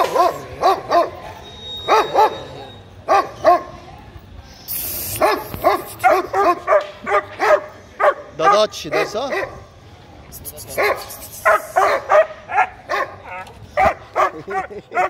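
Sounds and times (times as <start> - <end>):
dog barking: 0.0 - 3.8, 5.1 - 9.6, 10.8 - 15.0
brief hiss: 4.6 - 6.1.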